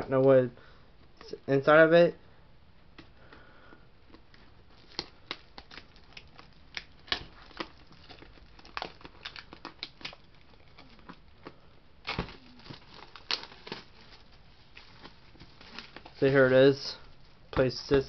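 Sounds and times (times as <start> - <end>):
plastic shrink wrap crinkling: 4.3 - 17.4.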